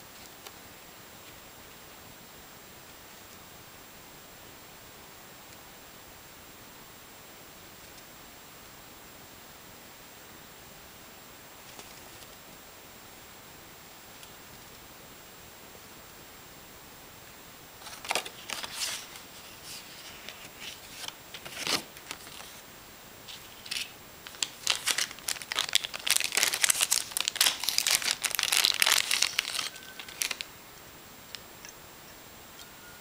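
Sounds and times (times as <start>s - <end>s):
plastic bag crinkling: 17.8s - 22.6s, 23.3s - 30.5s.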